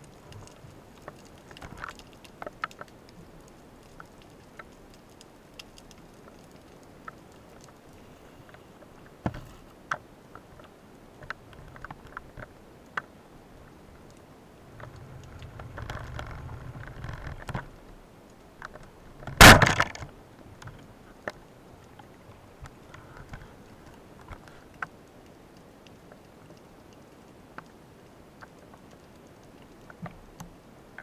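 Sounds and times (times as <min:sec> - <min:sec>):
faint clicks: 0:00.0 - 0:27.8
low rumble: 0:14.6 - 0:17.4
underwater speargun crack: 0:19.4 - 0:20.1.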